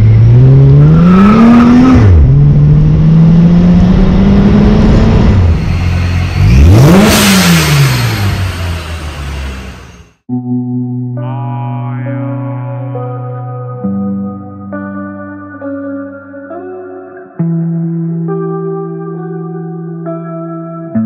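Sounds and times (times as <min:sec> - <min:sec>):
car engine accelerating hard: 0:00.0 - 0:10.2.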